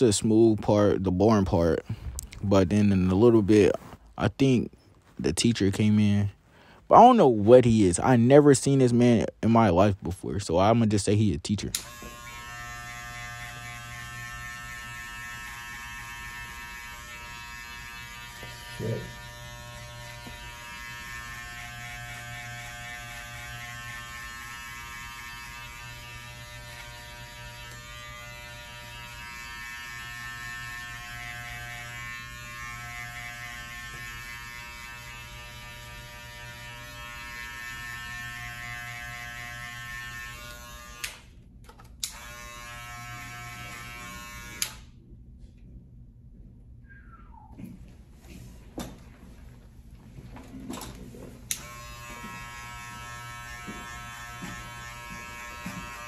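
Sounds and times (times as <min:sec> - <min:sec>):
electric hair clippers buzzing: 0:11.6 - 0:41.3, 0:42.0 - 0:44.9, 0:51.4 - 0:56.0.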